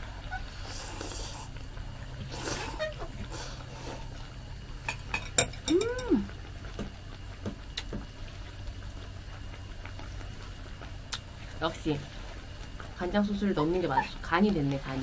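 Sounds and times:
person humming: 0:05.7 - 0:06.3.

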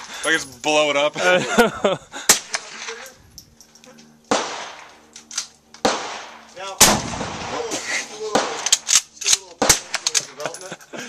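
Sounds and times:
rifle shots with echo: 0:04.3 - 0:05.0, 0:05.8 - 0:09.0, 0:09.6 - 0:10.2.

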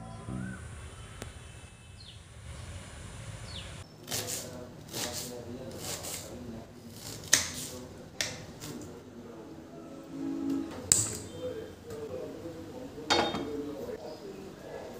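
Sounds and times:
faint bird chirps: 0:00.0 - 0:02.6
knife slicing onion on board: 0:04.1 - 0:06.3, 0:06.9 - 0:08.8.

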